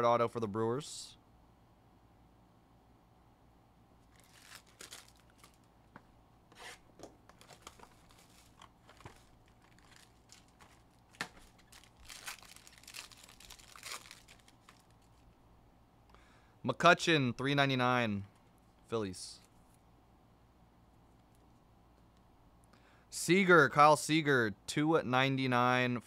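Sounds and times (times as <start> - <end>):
plastic and foil packaging crinkling: 4.1 - 5.7, 6.5 - 15.3.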